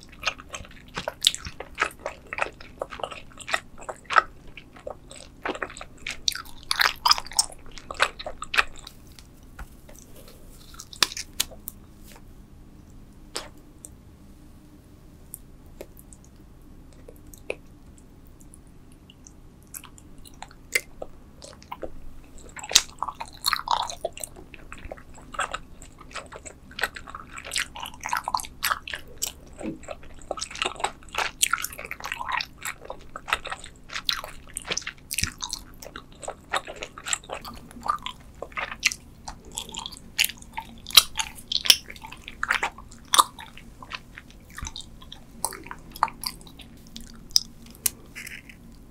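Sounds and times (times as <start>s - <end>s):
chewing gummy candy: 0.0s - 12.2s, 13.3s - 13.6s, 15.8s - 48.9s.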